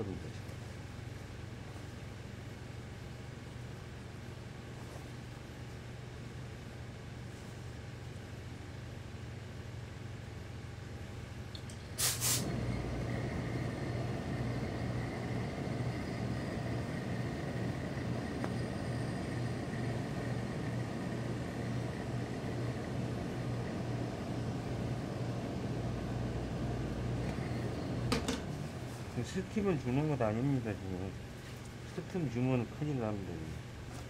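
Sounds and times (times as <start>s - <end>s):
pressing equipment drone and hum: 11.5s - 34.0s
pressing equipment hiss: 11.9s - 24.4s.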